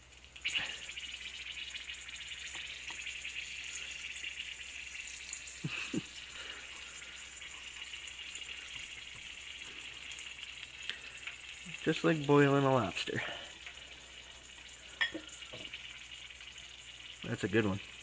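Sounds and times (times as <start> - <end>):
oil sizzling in skillet: 0.0 - 18.0.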